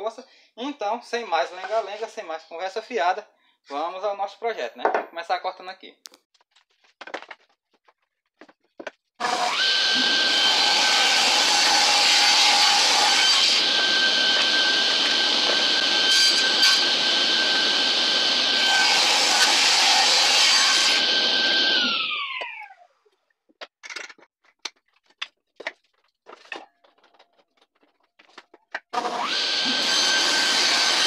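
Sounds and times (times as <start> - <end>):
table saw whining: 9.2 - 22.8, 28.9 - 31.0.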